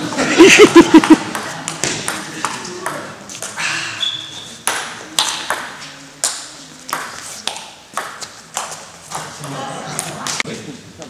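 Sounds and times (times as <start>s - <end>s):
table tennis ball hits: 4.6s - 9.6s.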